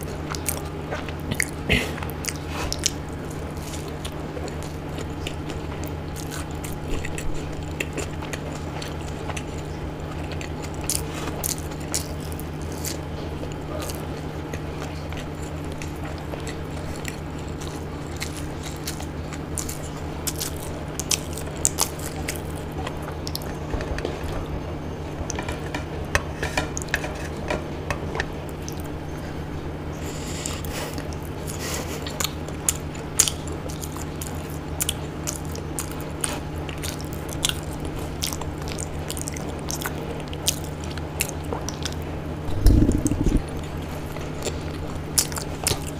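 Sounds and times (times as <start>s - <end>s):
chewing and biting food: 0.0s - 29.2s, 30.2s - 45.9s
steady low hum: 0.0s - 45.9s
wet mouth clicks: 42.5s - 43.6s.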